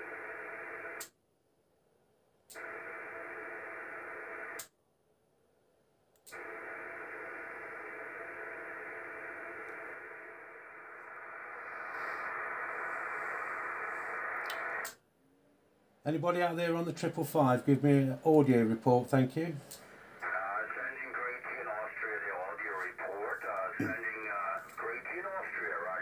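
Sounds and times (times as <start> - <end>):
radio static hiss: 6.6 - 15.0, 16.8 - 26.0
radio click: 13.4 - 15.0, 19.6 - 26.0.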